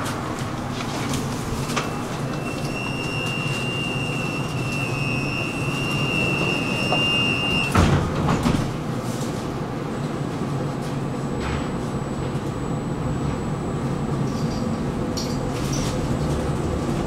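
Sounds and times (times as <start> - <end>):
tram running gear rumble: 0.0 - 11.6
high-pitched wheel squeal: 1.9 - 7.8.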